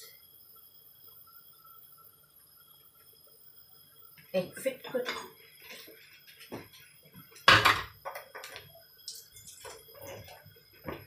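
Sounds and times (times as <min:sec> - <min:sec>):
dish clattering on hard surface: 0:07.4 - 0:08.5.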